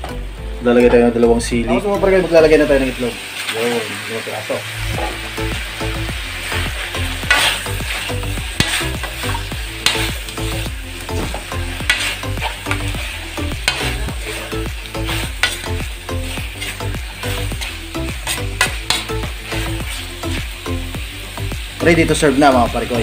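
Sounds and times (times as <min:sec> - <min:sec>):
light sizzle: 0:00.0 - 0:23.0
metal spatula scraping a wok: 0:06.4 - 0:20.6.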